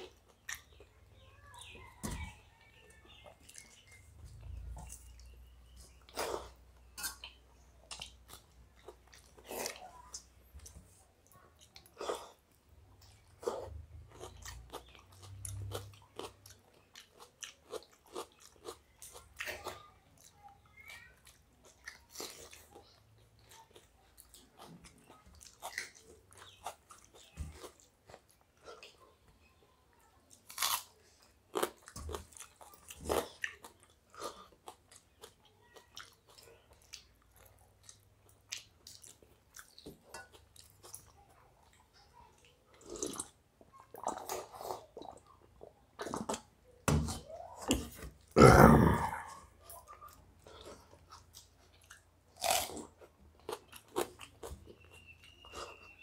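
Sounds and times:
people chewing: 0:00.0 - 0:29.3, 0:30.3 - 0:56.0
crunchy bites: 0:30.4 - 0:30.9, 0:52.4 - 0:56.0.

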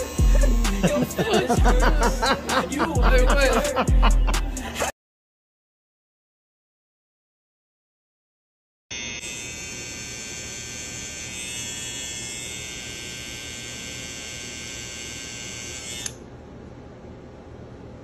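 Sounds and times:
hair trimmer buzzing: 0:00.0 - 0:02.8, 0:08.9 - 0:16.3.

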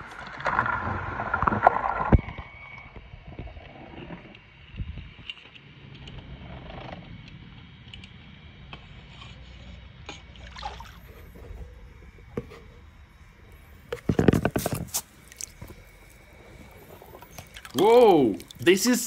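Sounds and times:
net moving through water: 0:00.0 - 0:02.7, 0:10.2 - 0:18.8
water splashing: 0:10.3 - 0:11.7, 0:13.6 - 0:19.0.

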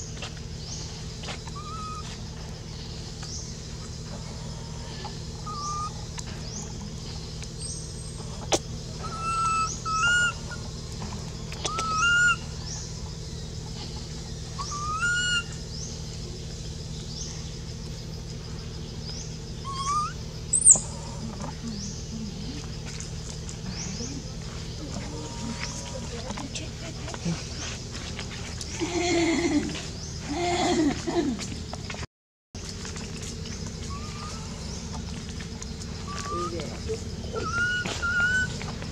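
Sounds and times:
baby monkey whimpering coos: 0:01.5 - 0:02.1, 0:05.4 - 0:06.0, 0:09.0 - 0:10.6, 0:11.7 - 0:12.4, 0:14.6 - 0:15.6, 0:19.6 - 0:21.6, 0:33.9 - 0:34.5, 0:36.1 - 0:38.6.

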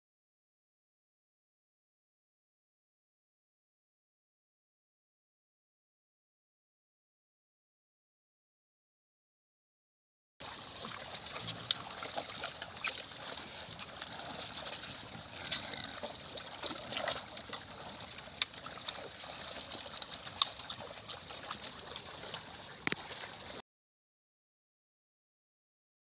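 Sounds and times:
pigs sloshing in muddy water: 0:10.4 - 0:23.6.

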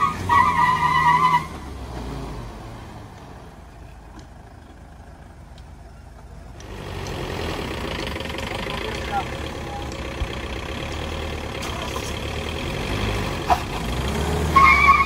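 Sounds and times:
tyre squeal on concrete: 0:00.0 - 0:01.7, 0:14.5 - 0:15.0
engines running under load: 0:00.0 - 0:15.0.

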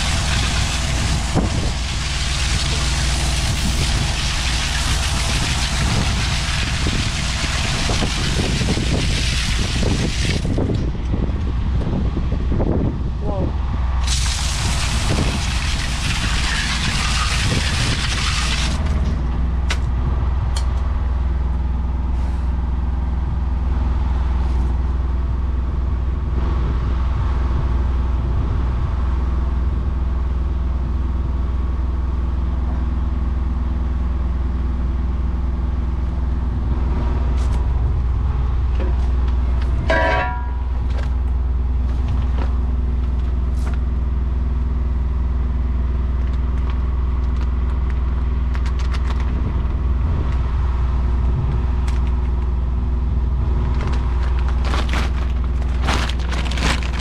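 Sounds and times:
loud hiss: 0:00.0 - 0:10.5, 0:14.0 - 0:18.8
engine running steadily: 0:00.0 - 0:57.0.

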